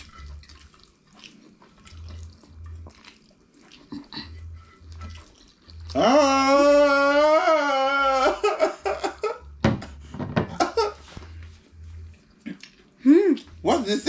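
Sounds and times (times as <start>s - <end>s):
man laughing: 8.0s - 11.2s.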